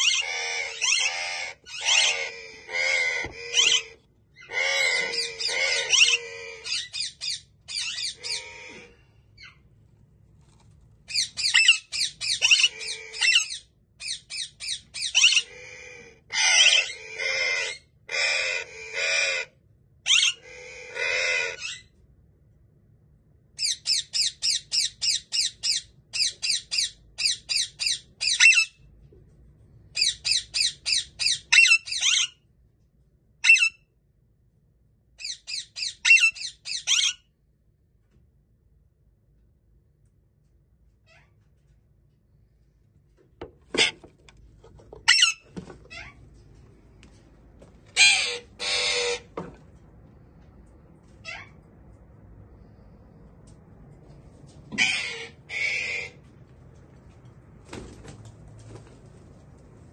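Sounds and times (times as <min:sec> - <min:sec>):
parakeet squawking: 0:00.0 - 0:09.6, 0:11.1 - 0:21.9, 0:23.6 - 0:28.8, 0:30.0 - 0:32.4, 0:33.4 - 0:33.8, 0:35.2 - 0:37.2, 0:45.0 - 0:46.2, 0:47.9 - 0:49.4, 0:51.2 - 0:51.6, 0:54.8 - 0:56.2.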